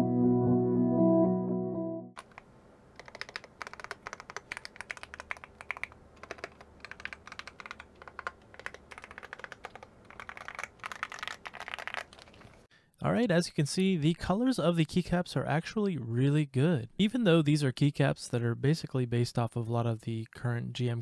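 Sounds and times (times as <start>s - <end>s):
mechanical keyboard typing: 2.2s - 12.5s.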